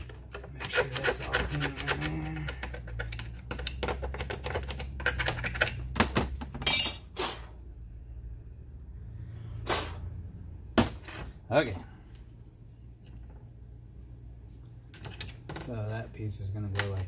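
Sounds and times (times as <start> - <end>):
tool scraping inside metal cover: 0.0 - 3.0
metal cover handled with scrapes: 0.0 - 5.8
brief swish: 9.6 - 10.1.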